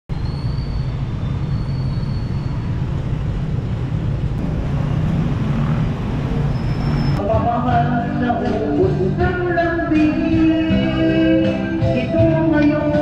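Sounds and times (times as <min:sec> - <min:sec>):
road traffic rumble: 0:00.1 - 0:13.0.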